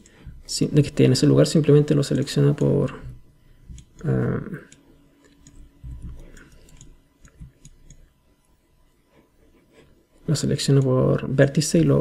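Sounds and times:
computer mouse clicks: 3.7 - 8.6.

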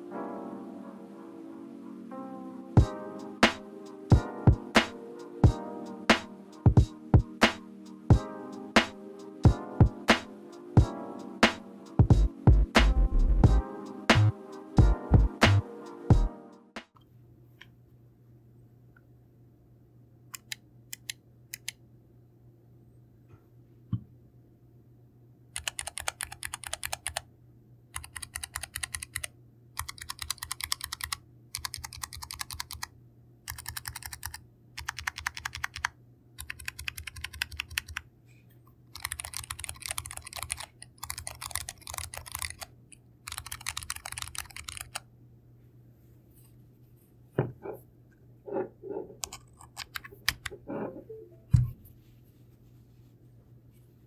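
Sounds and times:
keyboard typing: 25.6 - 27.2, 28.0 - 32.9, 33.5 - 38.0, 38.9 - 45.0, 49.2 - 50.9.

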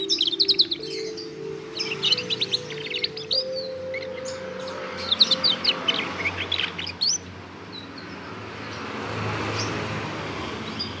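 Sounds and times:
canary chirping: 0.0 - 8.9.

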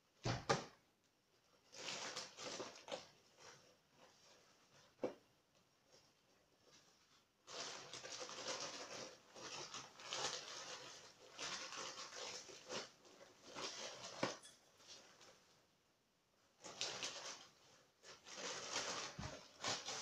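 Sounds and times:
plastic bag crinkling: 1.6 - 4.2, 7.4 - 15.5, 16.6 - 20.0.

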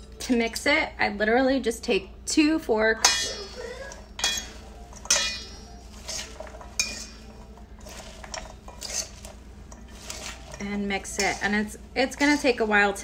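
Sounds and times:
forks scraping a metal bowl: 3.1 - 13.0.

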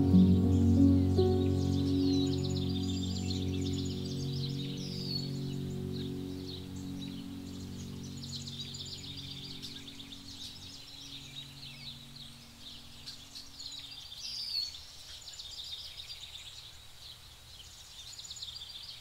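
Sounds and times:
soft background music: 0.0 - 14.5
small birds chirping: 0.0 - 19.0.

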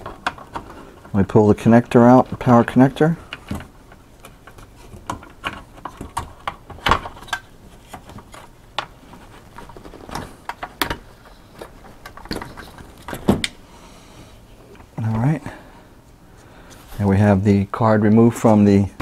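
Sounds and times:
plastic clicks and rattles: 3.3 - 9.0, 9.6 - 13.6.

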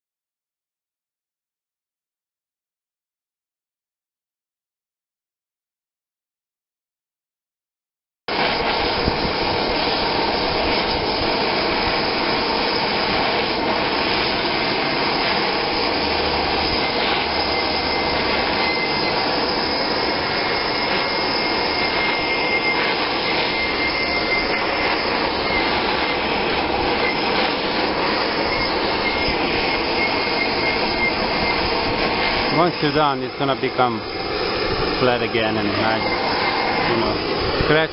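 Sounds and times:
gas torch burning: 8.3 - 37.9.

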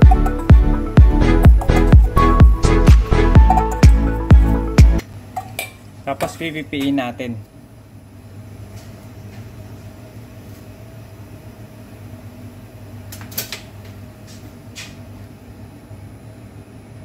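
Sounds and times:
low machine hum: 0.0 - 13.1.

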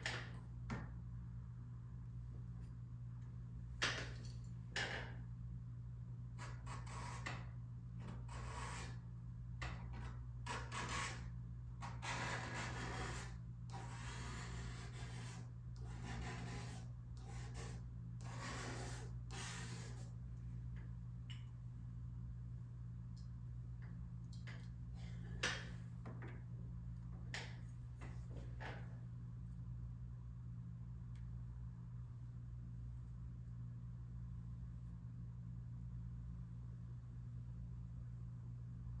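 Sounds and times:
palette knife scraping paint: 6.4 - 9.0, 9.7 - 20.2.

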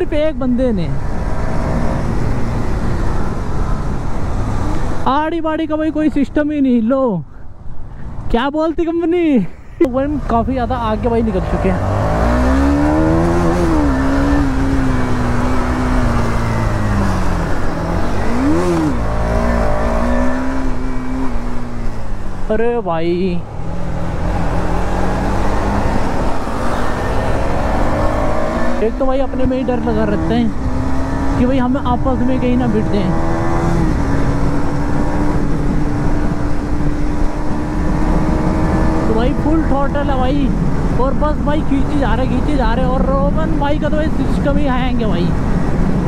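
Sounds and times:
motorcycle engine cruising: 9.9 - 46.0.

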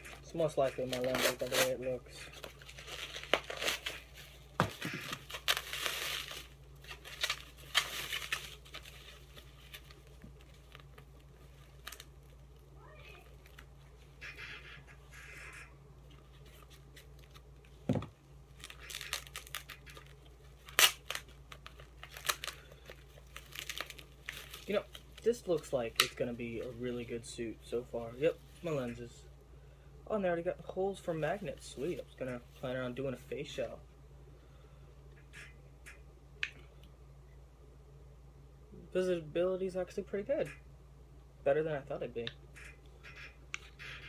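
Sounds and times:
plastic packaging crinkling: 0.1 - 14.2, 16.1 - 27.0.

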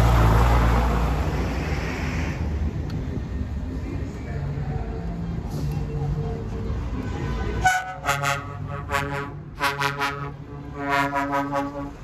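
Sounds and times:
bus engine running: 0.0 - 12.0
bus horn tooting: 7.0 - 12.0.

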